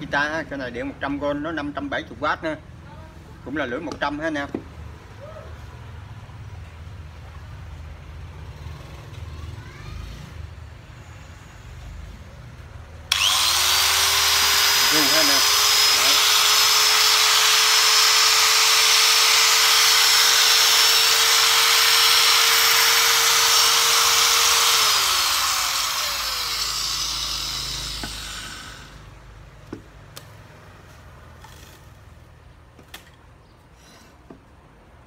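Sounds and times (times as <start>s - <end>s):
angle grinder whining: 13.1s - 29.1s.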